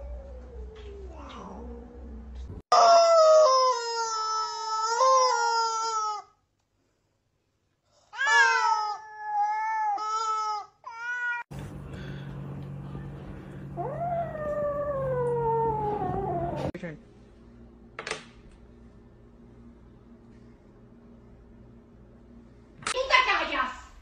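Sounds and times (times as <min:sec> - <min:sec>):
low hum: 0:11.5 - 0:24.0.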